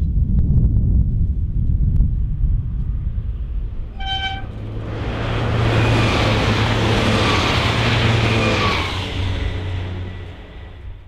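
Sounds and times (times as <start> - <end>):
low engine hum: 0.0 - 11.0
train passing: 2.9 - 11.0
train horn toot: 3.9 - 4.6.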